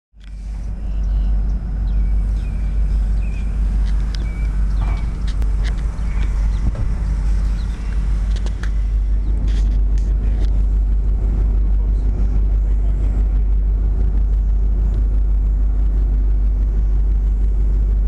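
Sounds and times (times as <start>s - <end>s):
motorcycle engine idling: 0.2s - 18.0s.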